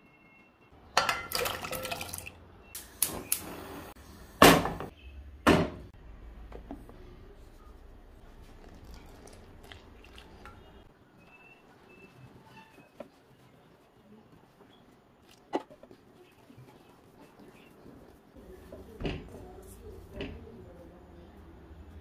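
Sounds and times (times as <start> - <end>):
dishes knocking and clattering: 1.0 - 2.1.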